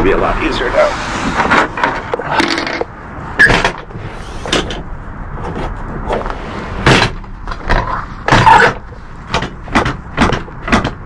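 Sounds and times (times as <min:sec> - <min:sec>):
tailgate hardware knocks and clicks: 0:06.9 - 0:11.0.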